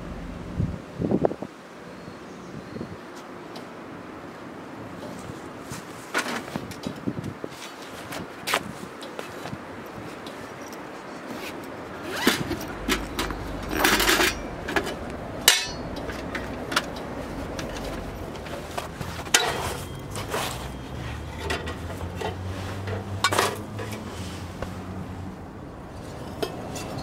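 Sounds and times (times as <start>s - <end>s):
hard gear knocking and clinking: 12.1s - 20.3s.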